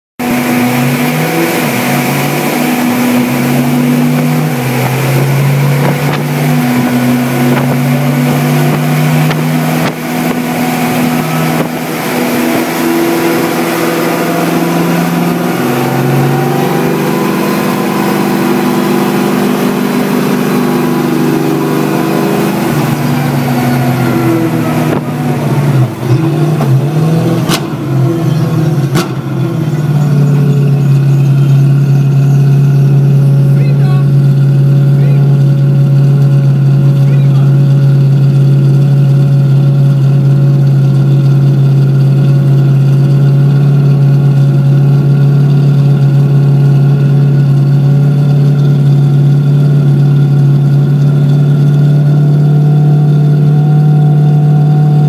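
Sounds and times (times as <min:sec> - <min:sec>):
race car engine revving: 0:00.2 - 0:55.0
engine backfire cracks: 0:04.0 - 0:10.6, 0:22.7 - 0:32.9.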